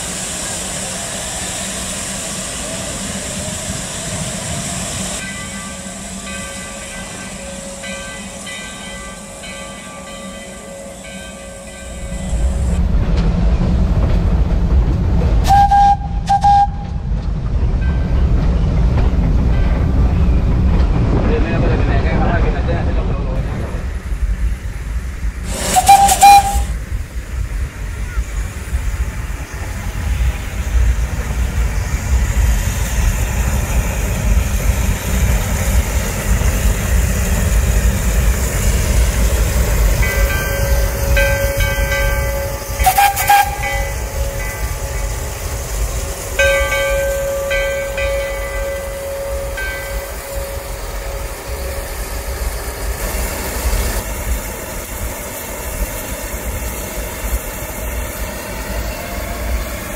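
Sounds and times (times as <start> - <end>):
steam locomotive rumbling: 0.0 - 59.9
steam whistle blasts: 15.5 - 16.9, 25.5 - 26.8, 40.6 - 44.5.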